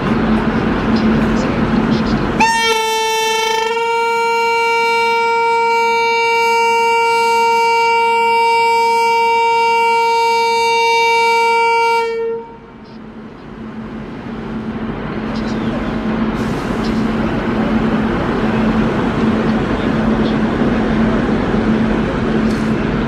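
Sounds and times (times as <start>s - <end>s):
locomotive horn blast: 2.4s - 12.8s.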